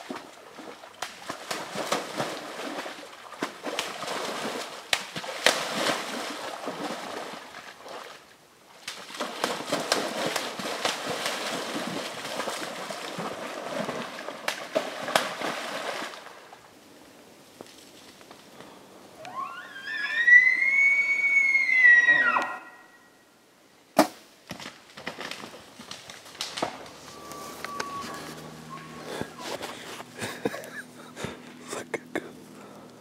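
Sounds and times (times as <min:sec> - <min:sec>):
elk splashing in water: 0:00.0 - 0:16.8.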